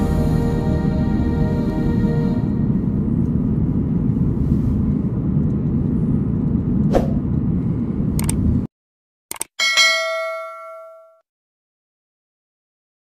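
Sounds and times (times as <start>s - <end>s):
car driving rumble: 1.2s - 8.7s
bright bell ding: 9.6s - 11.2s.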